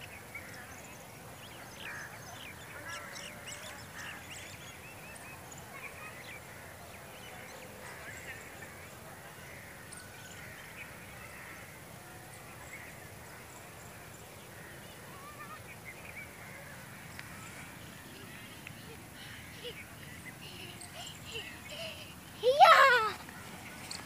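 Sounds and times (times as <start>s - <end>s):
low steady background hum: 0.0s - 24.0s
bird calls and chirps: 12.2s - 24.0s.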